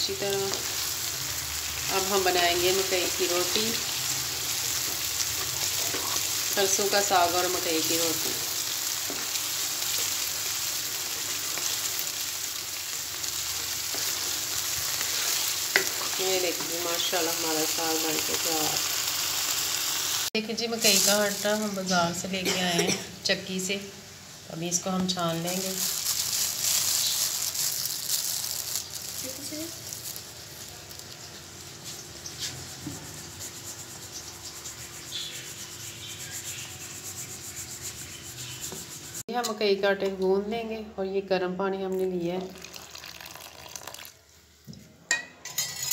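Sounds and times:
food sizzling and bubbling in pan: 0.0s - 22.4s, 23.0s - 39.3s, 42.4s - 44.6s
wooden spoon stirring: 13.2s - 17.3s
flour rubbed through mesh sieve: 31.7s - 39.2s.

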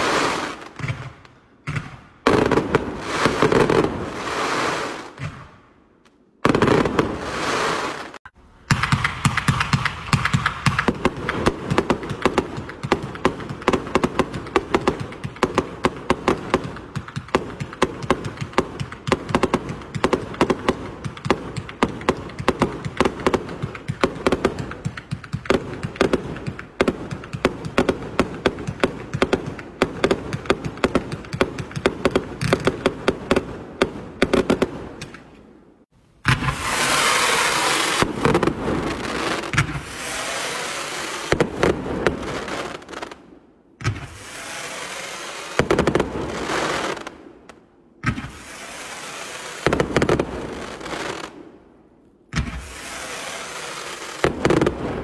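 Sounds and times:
hissing crackle of fireworks: 0.0s - 5.6s, 6.4s - 35.6s, 36.2s - 51.7s, 52.3s - 55.0s
fireworks bursting pops: 0.0s - 35.5s, 36.2s - 51.5s, 52.3s - 55.0s
fireworks launch thumps: 0.7s - 3.9s, 5.1s - 5.6s, 8.7s - 15.6s, 36.2s - 38.6s, 39.4s - 40.2s, 43.8s - 44.3s, 52.3s - 52.8s.

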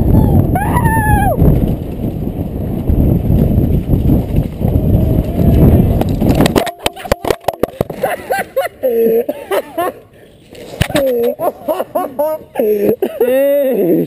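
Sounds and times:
wind buffeting: 0.0s - 8.6s
mountain bike rattling over trail: 0.9s - 8.4s.

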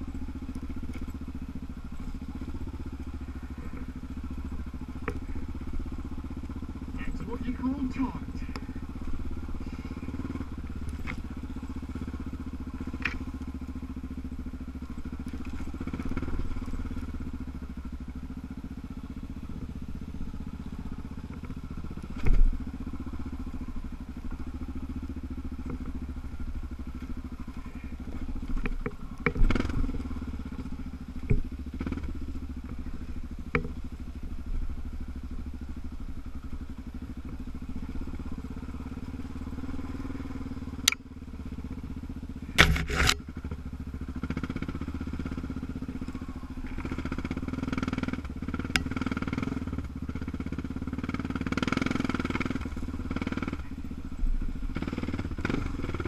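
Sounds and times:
motorbike engine running: 0.0s - 56.0s
bike knocking over bumps: 42.5s - 43.6s.

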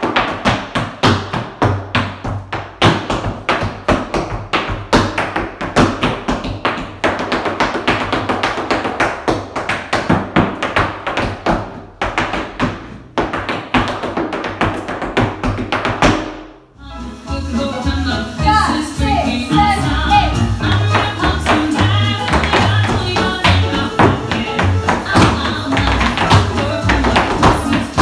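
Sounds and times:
tap shoes on hard floor: 0.0s - 16.5s, 20.1s - 28.0s
recorded music with bass line: 16.8s - 28.0s.

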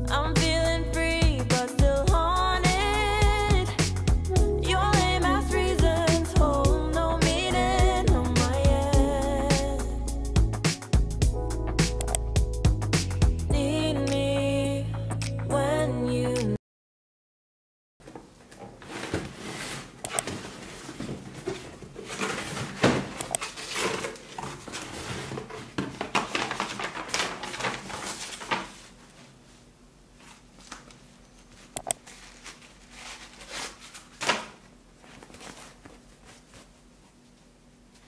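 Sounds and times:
tissue paper rustling: 23.4s - 34.3s, 35.0s - 37.3s.

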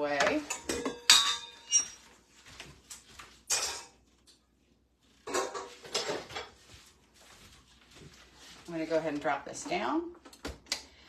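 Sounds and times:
metal kitchenware clinking: 0.0s - 2.1s, 3.5s - 4.0s, 5.2s - 6.5s.

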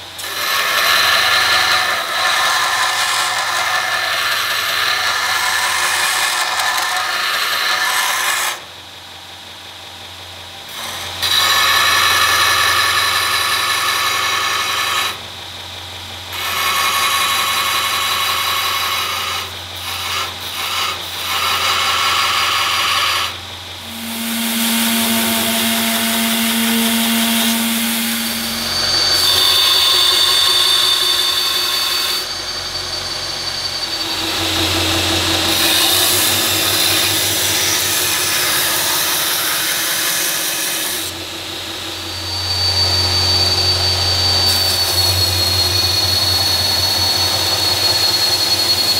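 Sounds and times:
blade grinding on abrasive belt: 0.0s - 8.7s, 10.7s - 15.2s, 16.3s - 48.9s
belt grinder motor humming: 16.4s - 48.8s.

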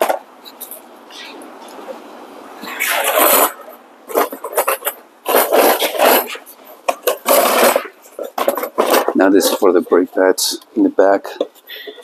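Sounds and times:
cardboard scraping and rustling: 2.6s - 9.7s.

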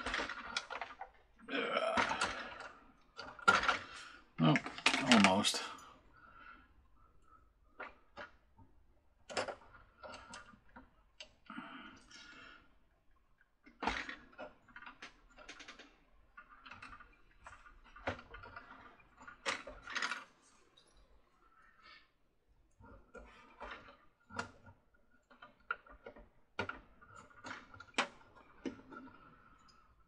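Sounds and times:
clicks of small plastic parts: 0.0s - 1.2s, 4.6s - 5.4s, 13.6s - 21.0s, 22.8s - 29.8s.

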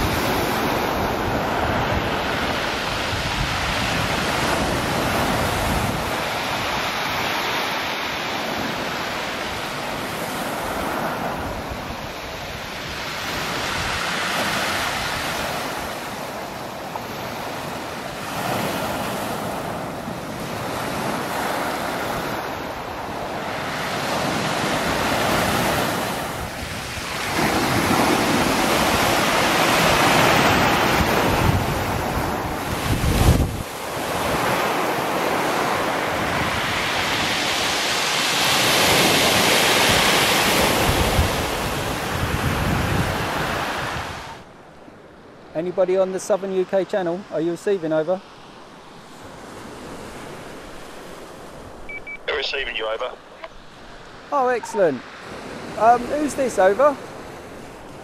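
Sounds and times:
wind rumbling on microphone: 0.0s - 7.2s, 24.2s - 38.0s, 38.6s - 44.5s
waves breaking on shingle beach: 0.0s - 44.4s, 49.0s - 58.0s.

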